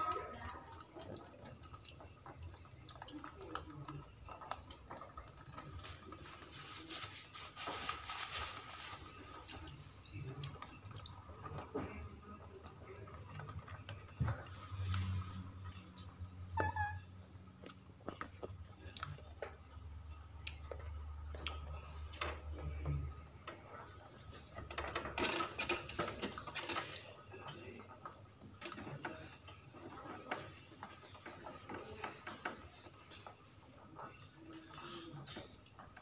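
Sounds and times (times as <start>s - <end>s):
animals crunching dry pellets: 0.0s - 16.3s.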